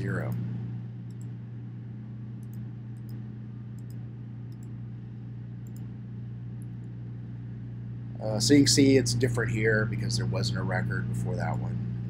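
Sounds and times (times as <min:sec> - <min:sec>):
low electrical hum: 0:00.0 - 0:12.0
computer mouse clicks: 0:01.0 - 0:01.4, 0:02.4 - 0:04.8, 0:05.6 - 0:05.9.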